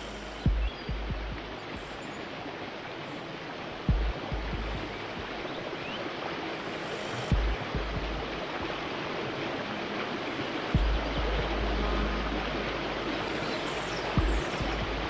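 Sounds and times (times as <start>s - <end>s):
short low thumps: 0.0s - 1.6s, 3.9s - 5.4s, 7.3s - 8.4s, 10.8s - 12.5s, 14.0s - 15.0s
flowing water rushing: 0.0s - 15.0s.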